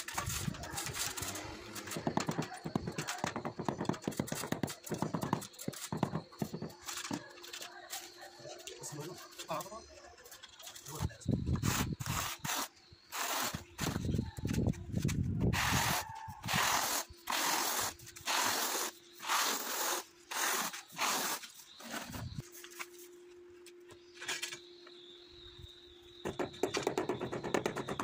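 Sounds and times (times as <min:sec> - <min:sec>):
trowel scraping adhesive: 0:11.6 - 0:14.0, 0:15.6 - 0:22.1.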